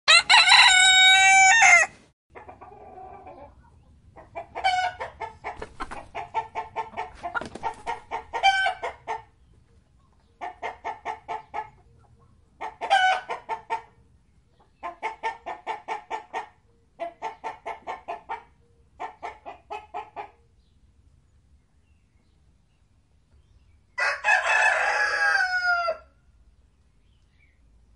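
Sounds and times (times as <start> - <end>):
rooster crowing: 0.1 - 2.0, 24.0 - 26.1
chickens clucking: 2.3 - 20.8.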